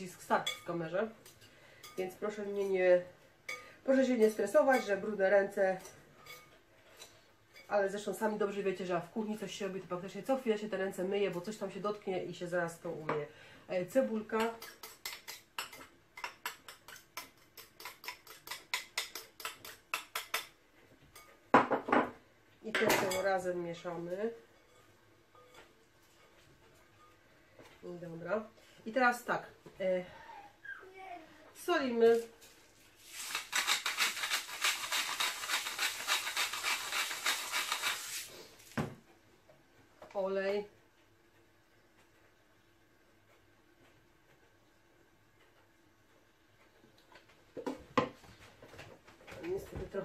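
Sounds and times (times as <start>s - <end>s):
knife tapping and scraping dish: 14.4s - 22.1s
salt mill grinding: 33.0s - 38.3s.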